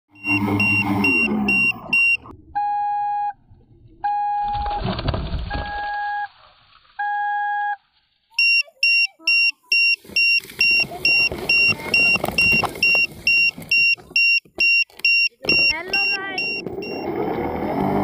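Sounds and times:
electronic beeping: 0:00.1 - 0:03.4, 0:04.0 - 0:04.9, 0:05.5 - 0:06.3, 0:08.4 - 0:17.2.

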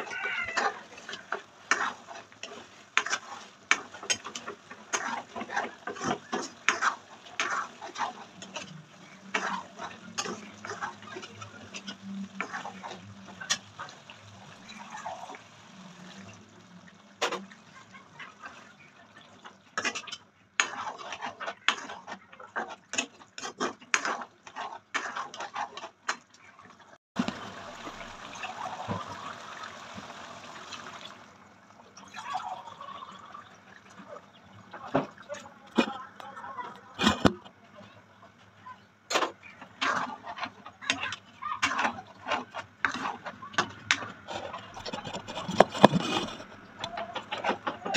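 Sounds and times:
spoon scraping metal pot: 0:00.0 - 0:15.4, 0:19.8 - 0:26.0, 0:39.1 - 0:47.9
gravy sloshing: 0:00.0 - 0:38.4, 0:39.1 - 0:47.9.

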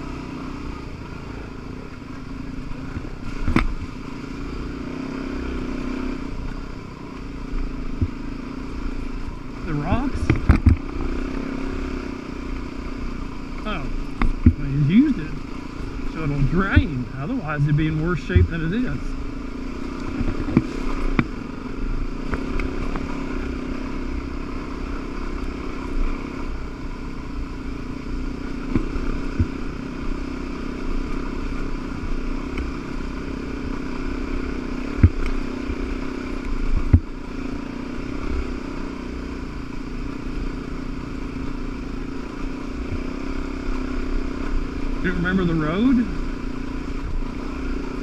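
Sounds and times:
dirt bike engine running: 0:00.0 - 0:48.0.

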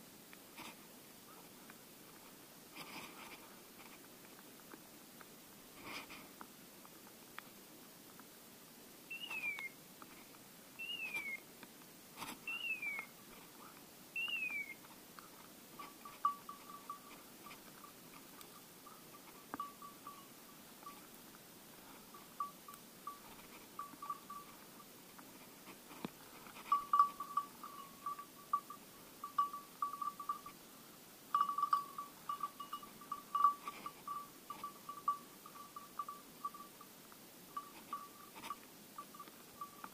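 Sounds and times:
short falling whistles: 0:09.1 - 0:09.8, 0:10.8 - 0:11.4, 0:12.5 - 0:13.1, 0:14.2 - 0:14.8
dog collar bell jingling: 0:15.8 - 0:21.0, 0:22.1 - 0:24.6, 0:26.6 - 0:30.5, 0:31.3 - 0:36.8.

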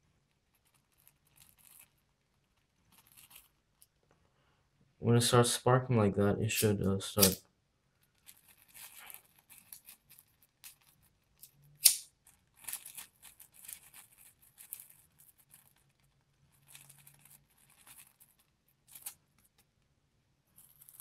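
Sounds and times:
charcoal sparking and sizzling: 0:07.2 - 0:07.4, 0:11.8 - 0:12.1
sharp snap: 0:07.2 - 0:07.4, 0:11.8 - 0:12.1.

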